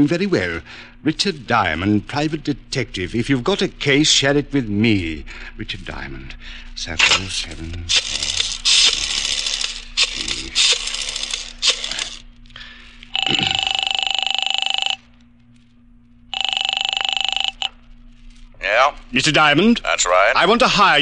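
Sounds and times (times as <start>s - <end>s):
rotary phone dialing: 7.9s - 12.3s, 13.1s - 15.1s, 16.3s - 17.8s
telephone ringing: 13.1s - 15.2s, 16.3s - 17.8s.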